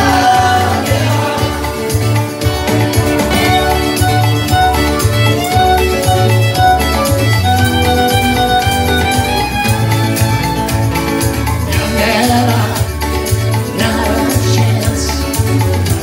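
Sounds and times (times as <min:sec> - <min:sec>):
live band playing: 0:00.0 - 0:16.0
pulsing bass: 0:00.0 - 0:16.0
fiddle melody: 0:02.7 - 0:11.6.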